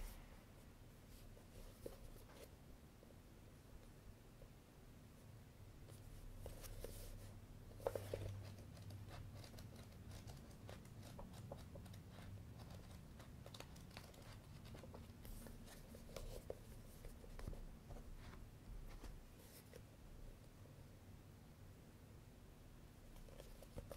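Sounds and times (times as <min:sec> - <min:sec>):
pages flipping: 0:12.6 - 0:17.6.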